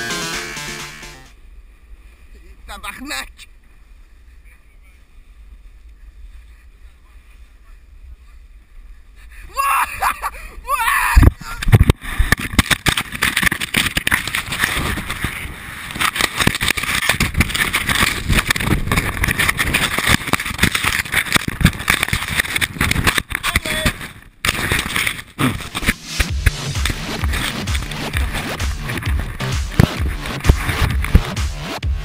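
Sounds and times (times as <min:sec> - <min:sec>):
snow rushing over camera: 0:11.3 - 0:31.3.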